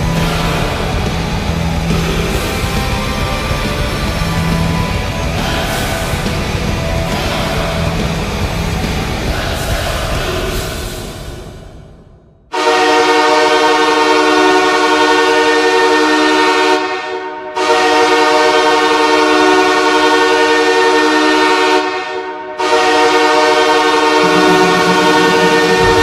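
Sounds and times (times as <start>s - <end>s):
goal horn blasts: 12.5s - 26.0s.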